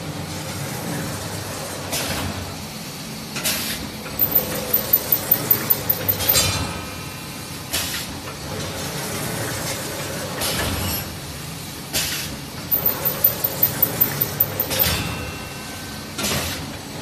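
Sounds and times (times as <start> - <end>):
rapid even ticking: 4.2 - 6.4, 12.7 - 15.0.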